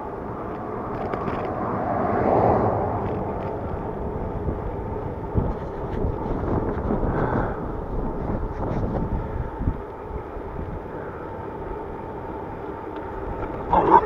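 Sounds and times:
road noise: 0:00.0 - 0:14.0
wind rushing over microphone: 0:00.8 - 0:11.1.

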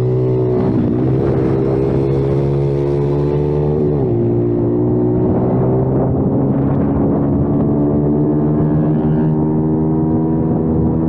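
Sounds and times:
motorbike engine running hard: 0:00.0 - 0:11.0.

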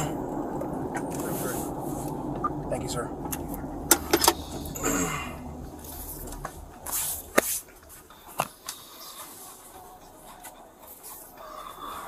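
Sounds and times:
low rumble: 0:00.0 - 0:08.3.

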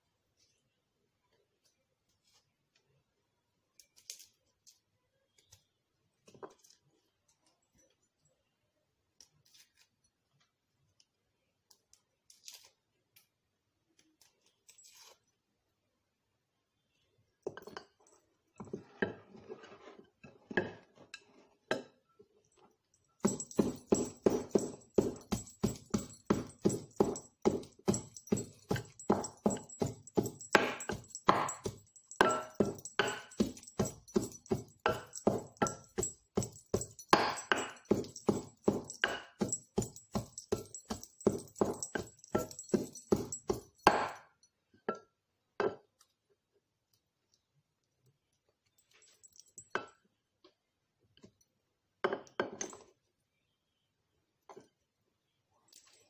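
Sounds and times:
pestle pounding in wooden mortar: 0:23.2 - 0:44.2.

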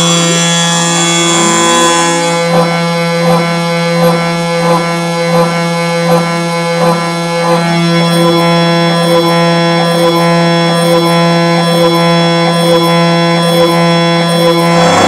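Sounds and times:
ambient drone music: 0:00.0 - 0:10.3, 0:12.6 - 0:15.0.

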